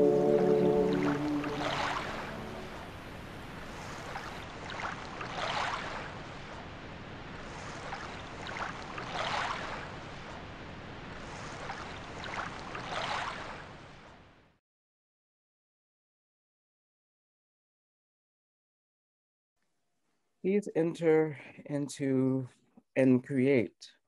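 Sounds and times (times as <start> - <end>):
ocean waves breaking: 0.0 - 14.3.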